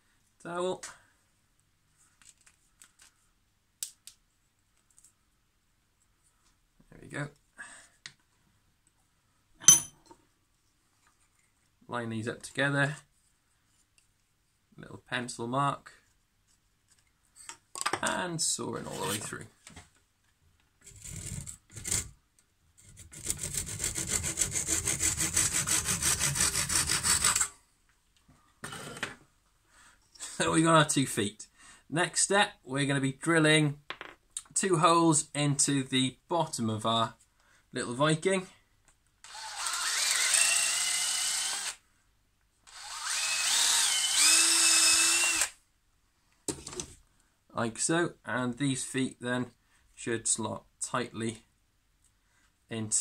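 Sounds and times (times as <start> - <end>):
handsaw cutting wood: 20.9 - 22.1, 22.9 - 27.5
drill boring into wood: 39.2 - 41.8, 42.7 - 45.6.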